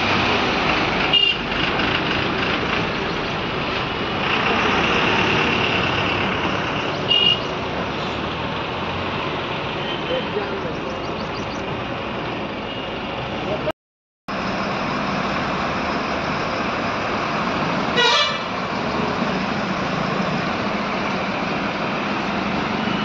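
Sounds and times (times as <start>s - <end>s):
truck and bus engine noise: 0.0s - 23.0s
vehicle horn blast: 18.0s - 18.5s.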